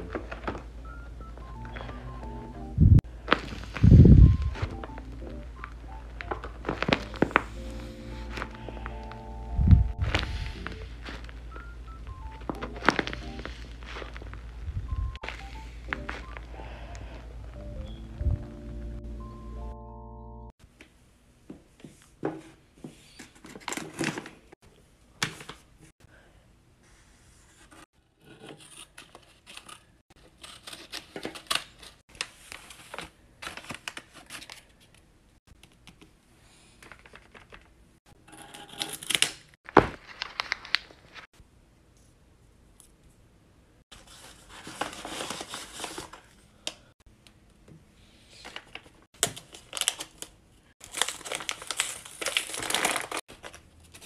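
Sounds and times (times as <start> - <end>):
paper rustling and tearing: 6.4 - 8.8, 12.6 - 14.6, 38.5 - 41.3, 43.9 - 46.3, 48.4 - 54.0.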